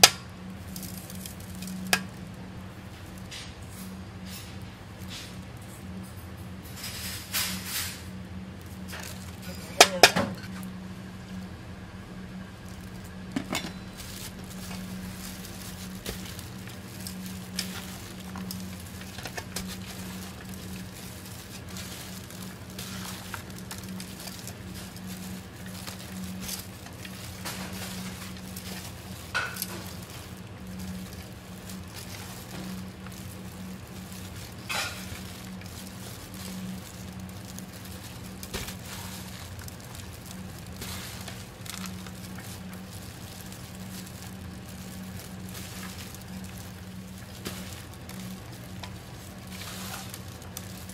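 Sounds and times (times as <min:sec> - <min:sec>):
radish rustling in a bowl: 0:00.0 - 0:11.4, 0:12.1 - 0:50.9
low hum: 0:10.4 - 0:50.9.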